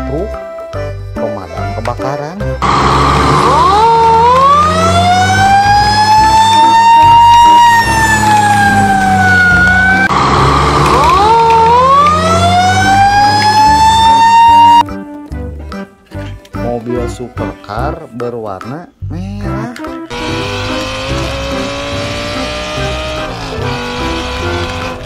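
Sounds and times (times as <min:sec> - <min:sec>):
fire truck siren wailing: 0:02.6 - 0:14.9, 0:20.1 - 0:25.0.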